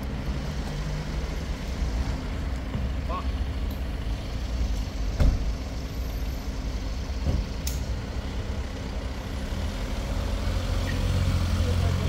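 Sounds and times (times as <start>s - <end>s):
car engine idling: 0.0s - 12.0s
car door shutting: 5.1s - 5.6s.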